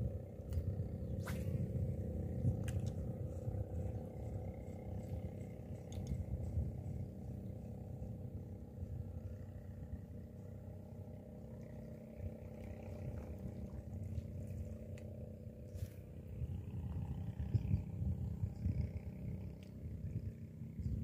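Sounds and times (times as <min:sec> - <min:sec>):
wind buffeting the microphone: 0:00.0 - 0:10.0, 0:15.8 - 0:21.0
faint steady hum: 0:00.0 - 0:21.0.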